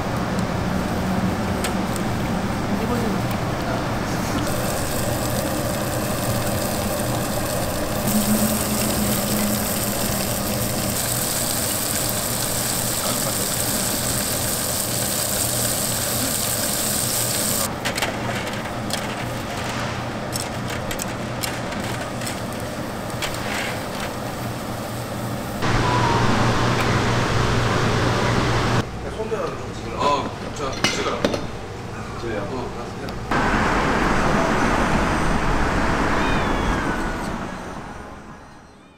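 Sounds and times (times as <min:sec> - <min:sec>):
low hum: 0:00.0 - 0:14.9
grill hiss: 0:04.4 - 0:17.7.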